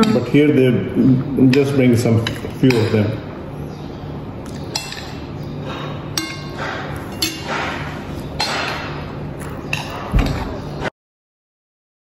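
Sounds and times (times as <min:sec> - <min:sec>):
metal spoon clinking on plate: 0:04.7 - 0:05.2, 0:06.2 - 0:07.6.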